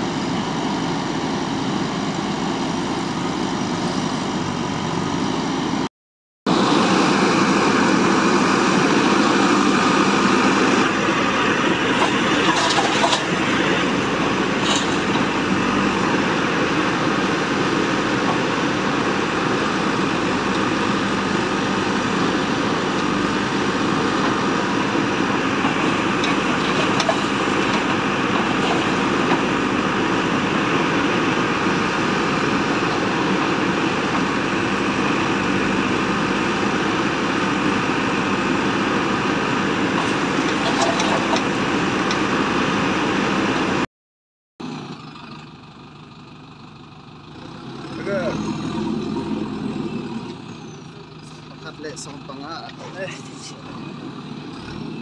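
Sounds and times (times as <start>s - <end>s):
diesel engine running: 0.0s - 5.9s, 6.5s - 43.9s, 44.6s - 55.0s
backhoe digging soil: 7.7s - 43.6s.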